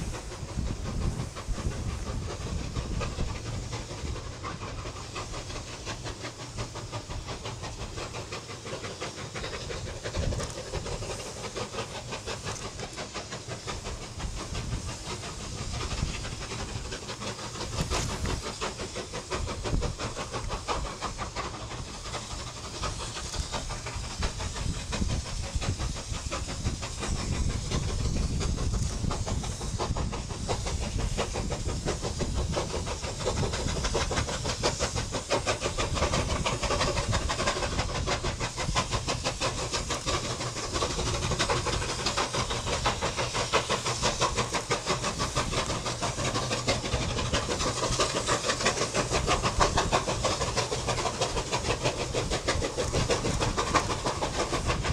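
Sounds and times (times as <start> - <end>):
steam locomotive chuffing: 0.0 - 54.9.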